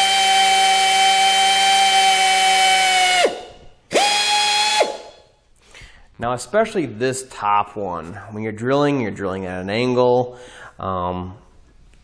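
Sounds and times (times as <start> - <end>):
electric drill boring into steel: 0.0 - 5.1.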